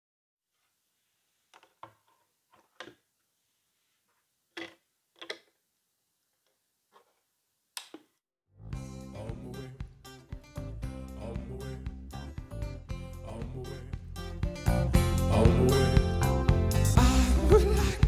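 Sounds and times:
record music playing: 0:08.8 - 0:18.0.

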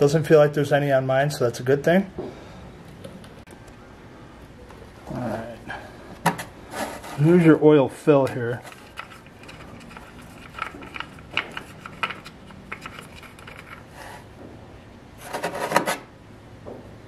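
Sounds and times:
dipstick scraping rattle: 0:08.2 - 0:14.3.

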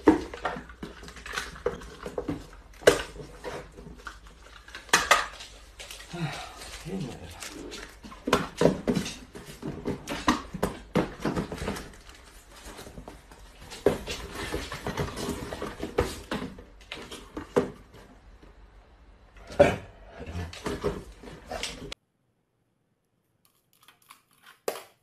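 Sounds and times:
cardboard knocking and rustling: 0:08.0 - 0:18.1.

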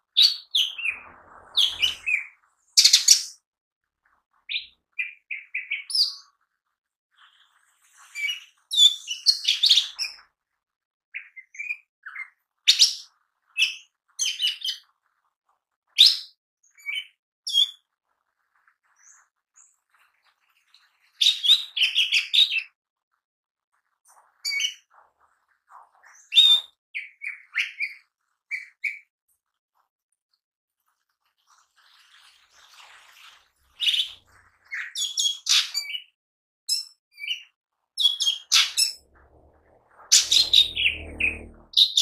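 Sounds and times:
bird singing chirps and whistles: 0:00.2 - 0:03.4, 0:38.0 - 0:42.0.

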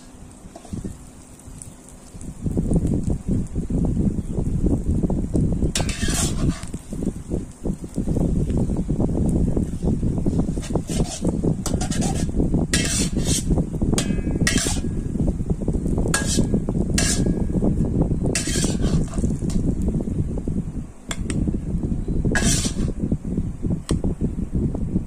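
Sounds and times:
metal spatula scraping wok: 0:00.0 - 0:01.0, 0:05.7 - 0:06.8, 0:10.4 - 0:15.0, 0:16.1 - 0:17.6, 0:18.3 - 0:19.8, 0:22.3 - 0:23.0
steady low rumble: 0:00.0 - 0:25.0.

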